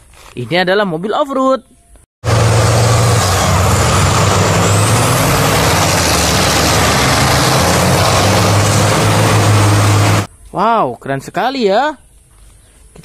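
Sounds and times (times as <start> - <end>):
truck engine droning: 2.2 - 10.3.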